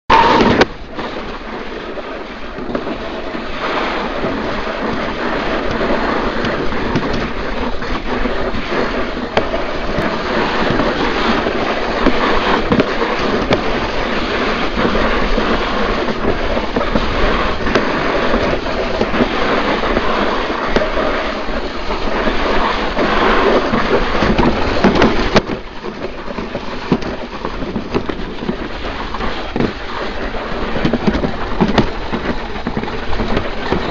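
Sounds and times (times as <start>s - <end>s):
sled rumbling in trough track: 0.0s - 33.9s.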